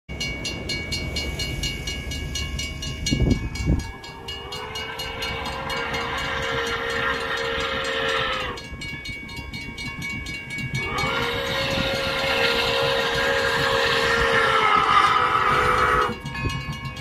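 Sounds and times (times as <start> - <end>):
low locomotive rumble: 0.1 - 17.0
steam whistle blasts: 4.0 - 8.7, 10.8 - 16.2.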